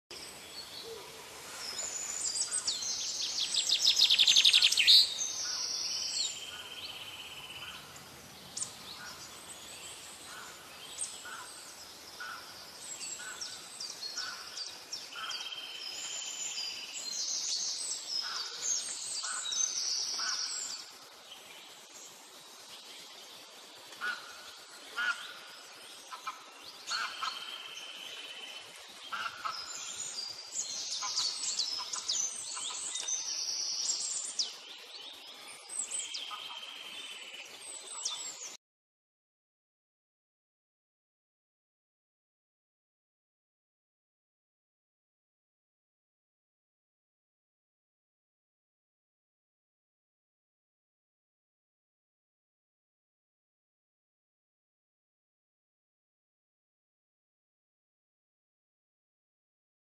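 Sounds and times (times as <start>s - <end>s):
birds chirping and singing: 0.1s - 38.6s.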